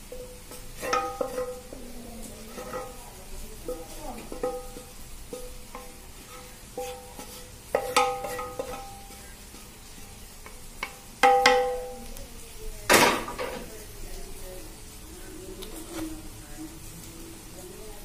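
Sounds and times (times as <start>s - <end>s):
wooden spatula knocking on a pan: 0.2s - 1.7s, 3.6s - 6.0s, 6.8s - 9.2s, 10.4s - 12.0s.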